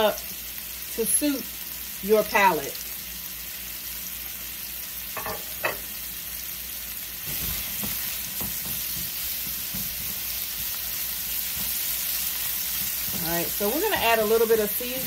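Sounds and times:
mushrooms sizzling in oil: 0.0 - 15.0
utensil tapping and scraping pan: 7.3 - 10.5, 11.4 - 11.9, 12.6 - 13.9.

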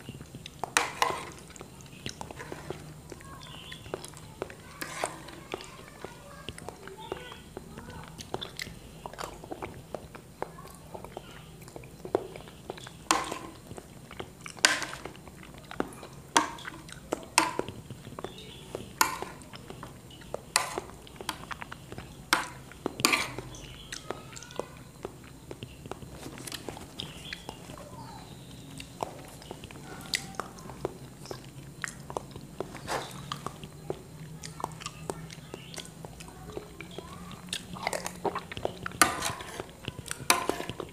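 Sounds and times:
wet lip smacks and chewing: 0.0 - 4.6, 7.6 - 13.0, 13.6 - 15.8, 28.6 - 39.0.

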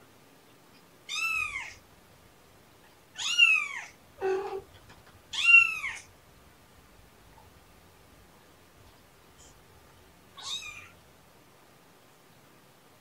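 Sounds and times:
kitten meowing: 1.1 - 1.8, 3.2 - 4.6, 5.3 - 6.1, 10.4 - 11.0
lower cat call: 1.1 - 1.8, 3.2 - 4.7, 5.3 - 6.1, 10.3 - 11.0.

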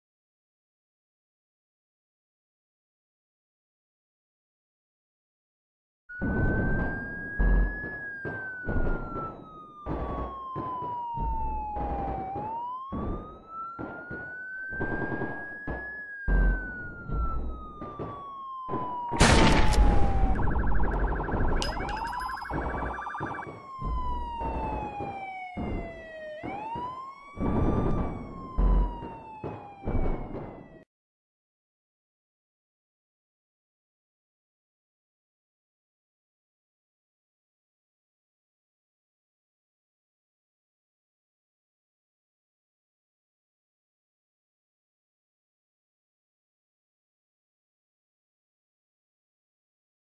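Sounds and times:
siren wailing: 6.1 - 30.8.

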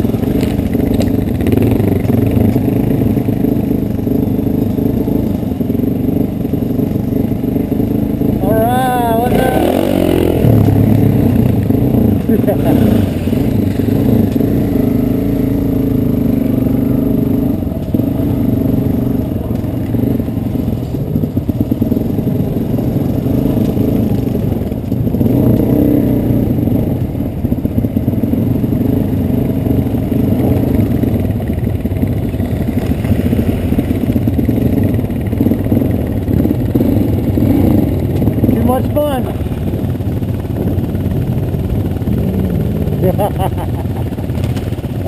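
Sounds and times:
clatter from stony ground: 0.0 - 3.1, 43.7 - 45.0
motorcycle engine running: 0.0 - 45.0.

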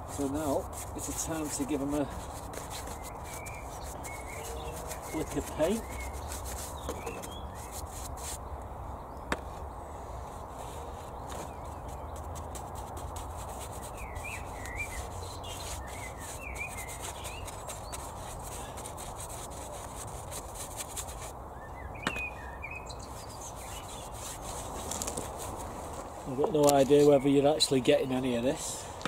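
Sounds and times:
paintbrush scrubbing on wood: 0.0 - 8.4, 10.5 - 21.3, 23.1 - 26.0
birds chirping: 0.0 - 20.4, 21.1 - 29.0.

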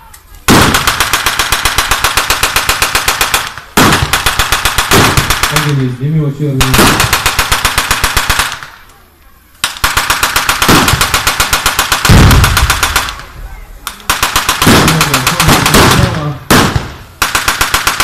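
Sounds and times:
machine gun firing bursts: 0.5 - 5.8, 6.6 - 8.7, 9.6 - 13.2, 14.0 - 18.0.

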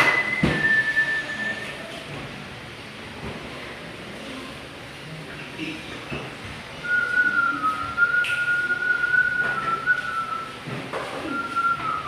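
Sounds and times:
person whistling: 0.0 - 1.9, 6.8 - 10.6, 11.2 - 12.0.

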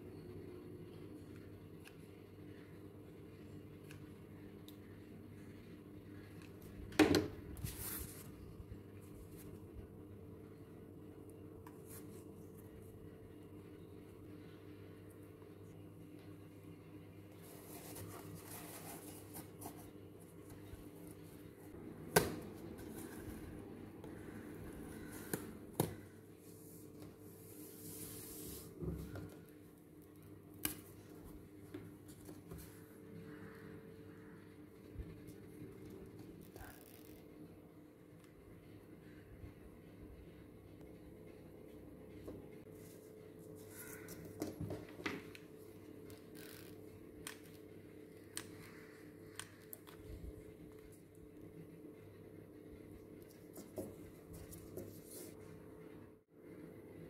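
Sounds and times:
faint steady hum: 0.0 - 57.0
cardboard rubbing: 17.4 - 19.9.

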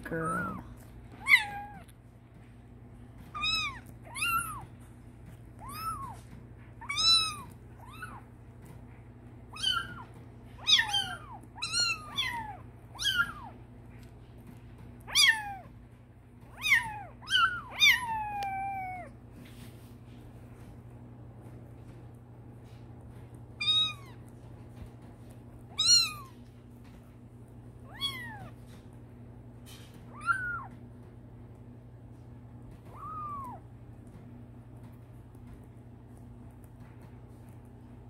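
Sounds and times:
kitten mewing: 0.2 - 1.9, 3.3 - 4.8, 5.6 - 8.3, 9.5 - 13.6, 15.0 - 15.7, 16.5 - 19.2, 25.7 - 26.4, 27.8 - 28.7, 30.1 - 30.8, 32.8 - 33.7.

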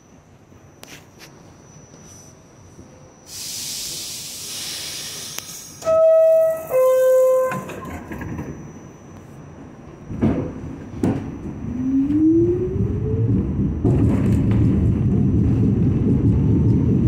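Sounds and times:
steady hiss: 3.3 - 5.8
two-tone door closing chime: 5.8 - 12.2.

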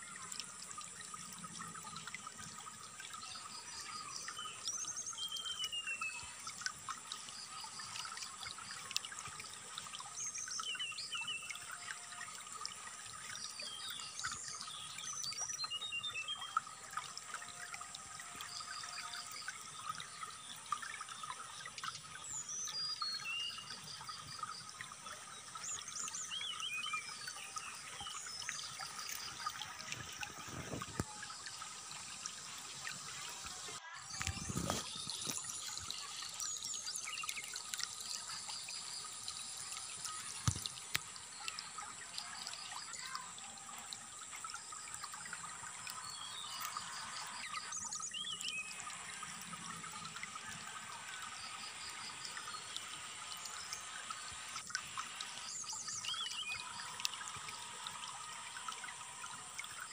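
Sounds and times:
water trickling: 0.0 - 59.9
bird singing: 13.4 - 16.6, 25.4 - 31.5, 46.0 - 48.9, 55.4 - 56.9.

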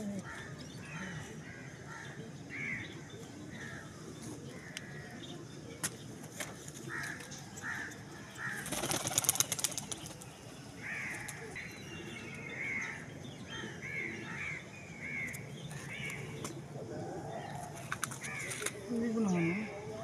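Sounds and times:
pigeon flapping wings: 8.6 - 10.2.

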